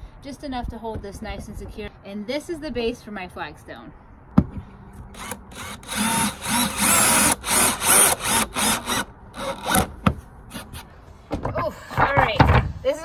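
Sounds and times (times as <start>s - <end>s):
cordless drill driving screw: 5.2s - 9.9s
drill clicks: 5.2s - 9.9s.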